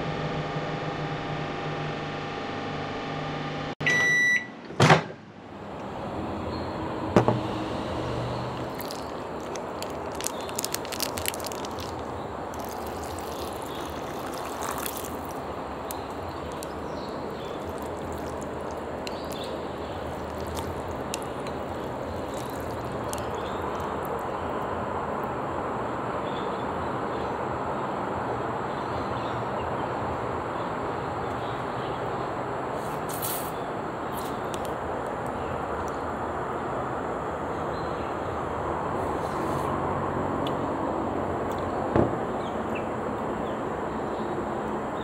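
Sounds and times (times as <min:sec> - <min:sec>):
water pouring into bowl: 0:08.6 - 0:24.4.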